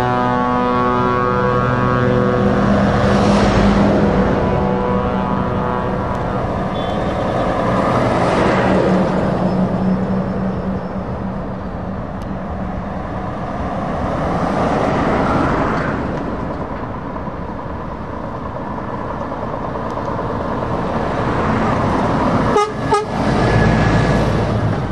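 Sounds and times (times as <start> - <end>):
truck horn: 0.0 - 11.2, 22.2 - 24.2
heavy trucks driving past: 0.0 - 24.9.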